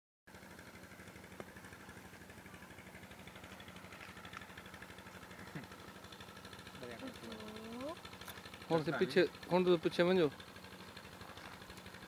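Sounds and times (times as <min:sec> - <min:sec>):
small engine idling: 0:00.3 - 0:12.0.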